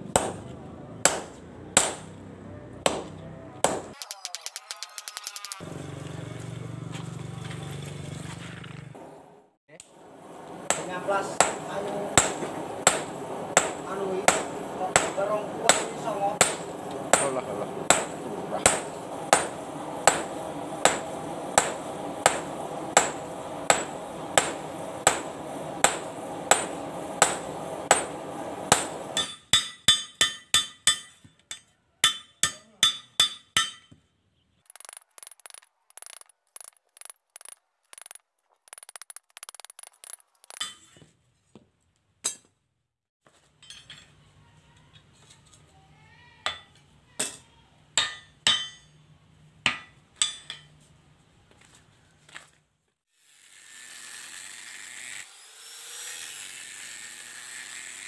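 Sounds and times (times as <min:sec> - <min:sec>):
continuous background noise: 0:00.0 - 0:42.5, 0:43.3 - 0:53.0
hammer blows on anvil: 0:10.6 - 0:34.0.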